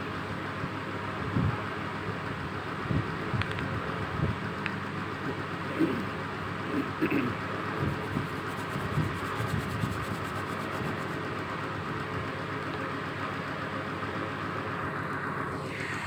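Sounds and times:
background rumble and hiss: 0.7s - 16.0s.

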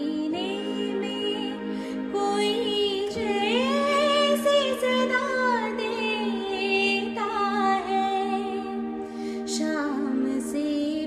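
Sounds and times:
sustained synthesizer chord: 0.0s - 11.0s
woman singing: 0.0s - 11.0s.

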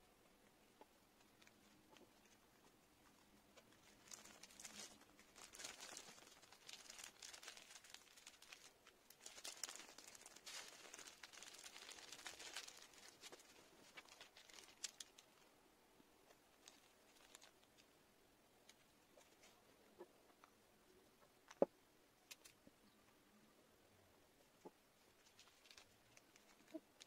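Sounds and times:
paper towel crinkling: 3.8s - 15.4s
small clicks: 21.4s - 22.6s.

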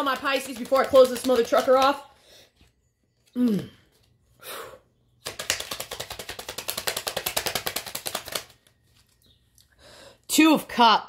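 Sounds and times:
cards being shuffled: 0.0s - 2.0s, 5.2s - 9.3s.

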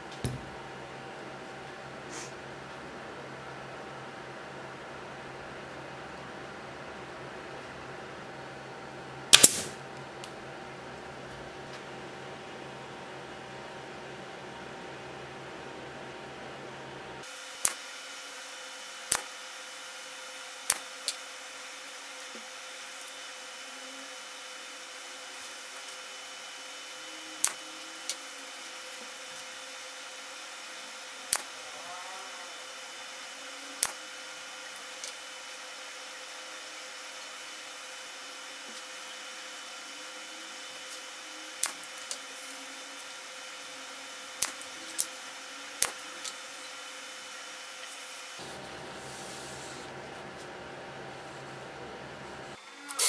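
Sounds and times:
faint hum: 0.0s - 17.2s, 19.6s - 53.0s
workshop machine hiss: 2.0s - 2.4s, 9.3s - 9.8s, 17.2s - 53.0s.

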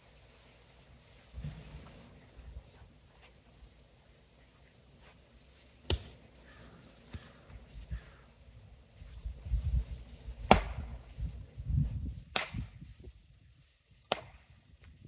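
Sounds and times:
axe chopping firewood: 5.8s - 6.2s, 10.4s - 11.0s, 12.3s - 12.6s, 14.1s - 14.4s.

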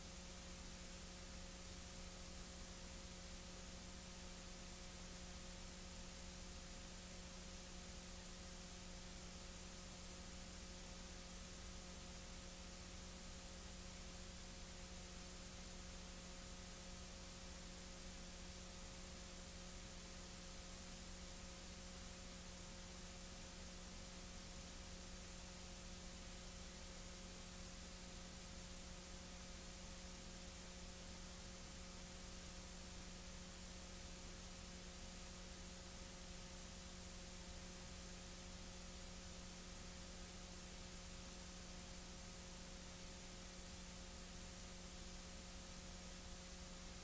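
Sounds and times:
faint steady hiss: 0.0s - 47.0s
low electrical hum: 0.0s - 47.0s.

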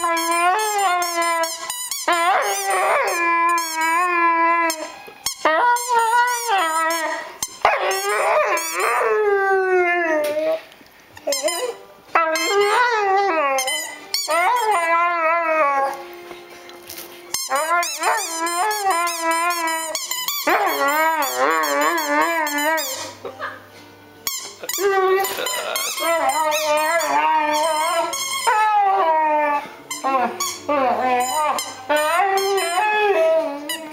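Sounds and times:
dog whining and moaning: 0.0s - 16.2s, 17.4s - 23.7s, 24.4s - 33.9s.

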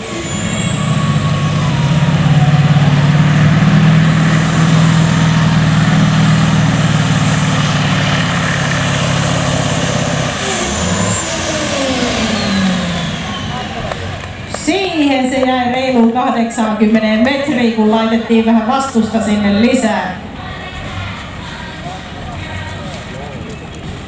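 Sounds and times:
diesel truck engine at full throttle: 0.0s - 24.0s.

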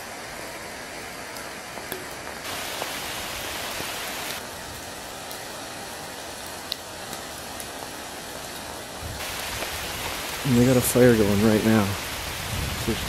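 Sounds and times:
steady rain in woods: 0.0s - 13.0s
raindrop ticks: 6.4s - 7.9s, 8.5s - 12.0s.

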